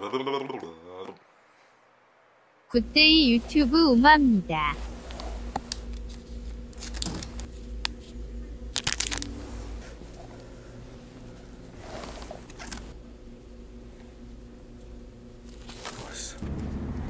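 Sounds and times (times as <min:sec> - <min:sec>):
steady low hum: 0:02.7 - 0:17.0
plastic packs crinkling and clicking: 0:06.8 - 0:07.5, 0:08.7 - 0:09.3.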